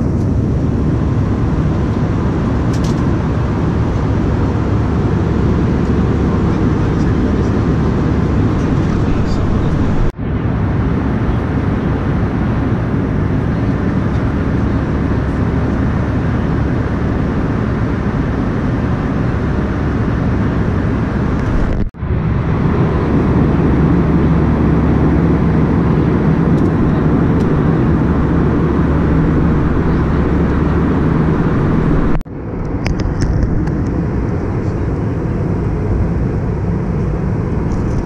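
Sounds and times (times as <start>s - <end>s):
airplane cabin engine roar: 0.0s - 38.0s
low hum: 0.0s - 38.0s.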